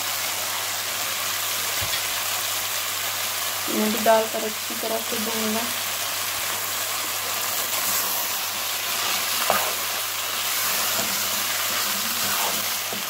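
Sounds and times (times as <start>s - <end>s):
meat and potatoes sizzling in oil: 0.0s - 13.0s
spoon stirring in pan: 8.8s - 13.0s.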